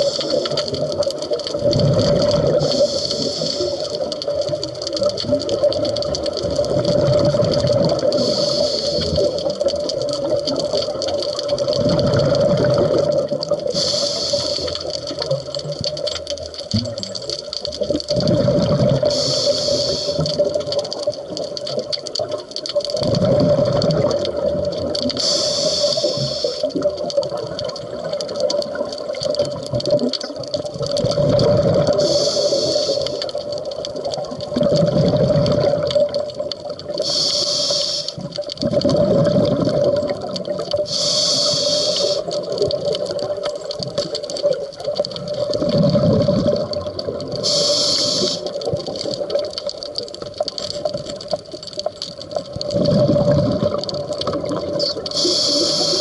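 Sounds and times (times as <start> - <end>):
regulator inhale hiss: 0.0 - 0.5, 2.5 - 4.1, 8.0 - 9.5, 13.6 - 15.2, 19.0 - 20.5, 25.2 - 26.8, 31.9 - 33.4, 37.0 - 38.2, 40.8 - 42.5, 47.4 - 48.6, 54.8 - 56.0
exhaled bubbles rumbling: 0.0 - 56.0.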